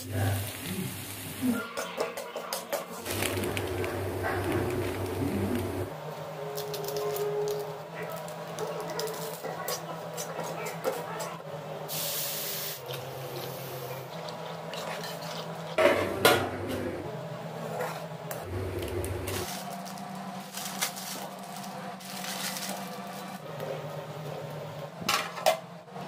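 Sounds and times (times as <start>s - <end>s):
water hissing in hot pan: 0.0s - 1.6s, 11.9s - 12.8s
water boiling: 0.0s - 9.1s
metal spatula scraping a pan: 1.6s - 3.0s.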